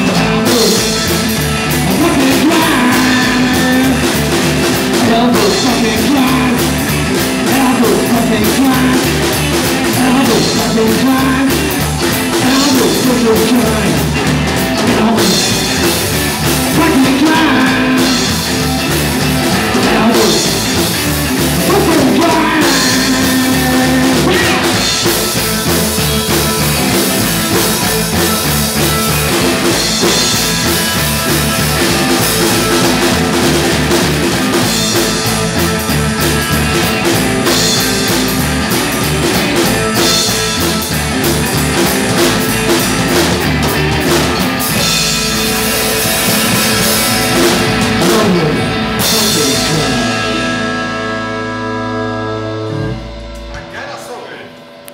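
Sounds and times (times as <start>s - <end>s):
man singing: 0.0s - 18.8s, 19.4s - 25.5s, 47.9s - 50.8s
double bass: 0.0s - 53.8s
drum kit: 0.0s - 54.9s
electric guitar: 0.0s - 54.9s.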